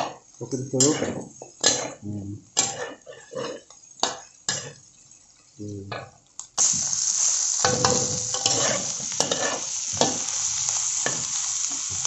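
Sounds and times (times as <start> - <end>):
loud frying sizzle: 0.0 - 12.0
spatula clicking and scraping: 8.3 - 10.2.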